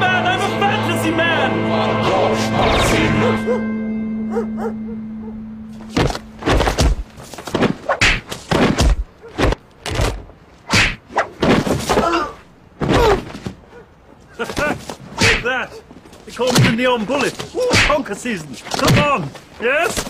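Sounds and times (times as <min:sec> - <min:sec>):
held musical note: 0:00.0 - 0:07.2
punches and body blows: 0:05.8 - 0:13.7, 0:14.4 - 0:15.6, 0:16.4 - 0:20.0.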